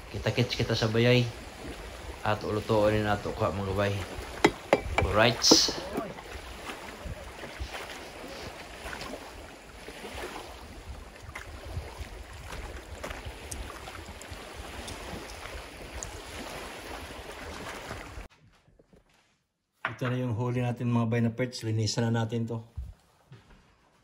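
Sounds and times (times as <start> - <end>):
water lapping against dock: 0.0 - 19.3, 22.7 - 24.0
wind buffeting microphone: 3.2 - 18.3
footsteps on wooden boards: 4.4 - 6.2, 22.8 - 24.0.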